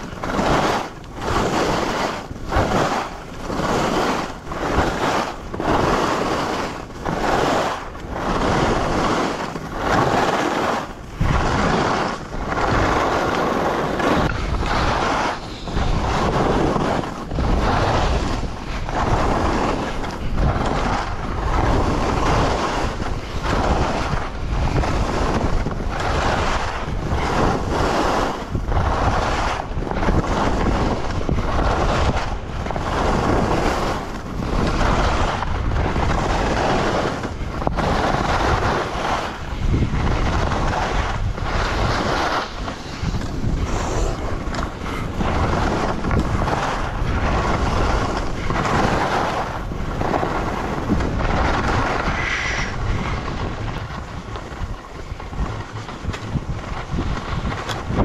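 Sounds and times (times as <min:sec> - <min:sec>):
wind buffeting microphone: 0:00.0 - 0:58.0
skis hissing over snow: 0:12.9 - 0:18.3, 0:40.1 - 0:45.9, 0:51.3 - 0:53.5.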